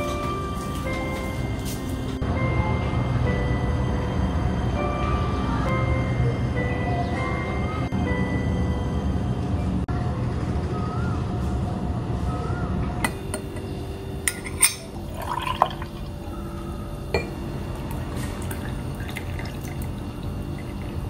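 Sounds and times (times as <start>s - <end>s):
low steady hum: 0.0s - 21.0s
crockery and glass clinking: 13.0s - 16.0s, 17.1s - 17.4s
milk pouring into a cup: 15.1s - 16.1s, 17.9s - 21.0s.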